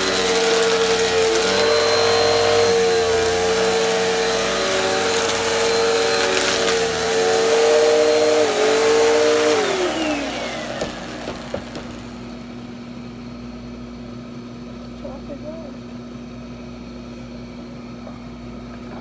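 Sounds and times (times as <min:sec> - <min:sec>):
vacuum cleaner motor whining: 0:00.0 - 0:13.9.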